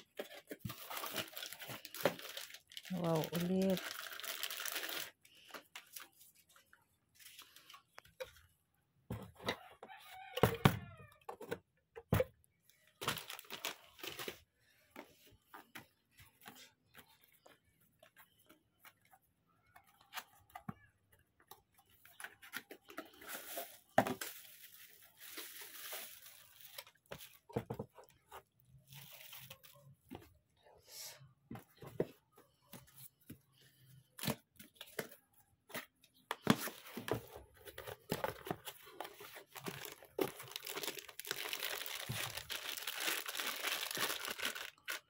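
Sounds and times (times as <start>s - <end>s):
plastic bag rustling: 0.6s - 5.2s, 23.2s - 27.5s, 39.4s - 45.0s.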